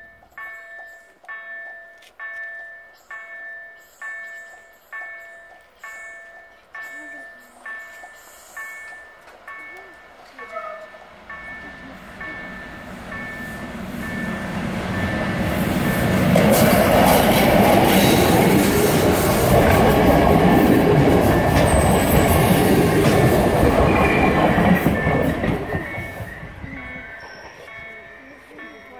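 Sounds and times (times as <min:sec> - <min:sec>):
level crossing warning bell: 0:00.0 - 0:28.9
diesel train rumbling past: 0:07.0 - 0:28.9.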